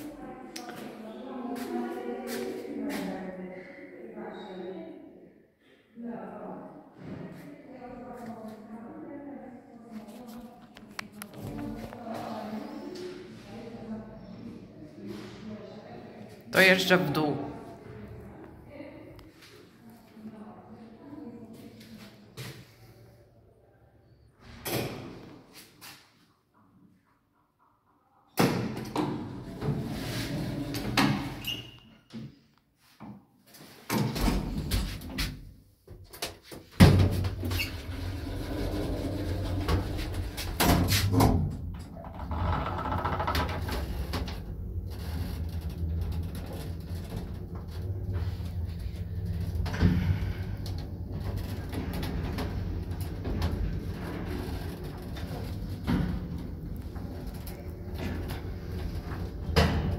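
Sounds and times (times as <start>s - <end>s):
lift car humming: 43.6s - 59.6s.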